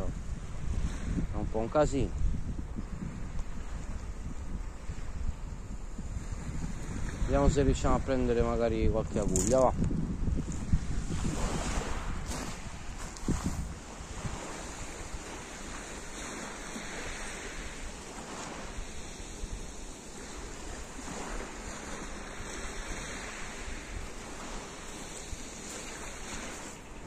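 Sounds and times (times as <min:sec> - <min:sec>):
wind buffeting microphone: 0:00.0 - 0:27.0
waves washing on pebble shore: 0:06.1 - 0:09.8, 0:10.4 - 0:27.0.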